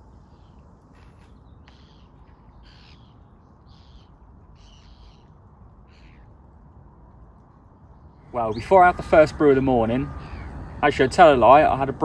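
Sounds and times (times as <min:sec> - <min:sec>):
bird calling: 0:00.3 - 0:06.3, 0:08.3 - 0:11.8.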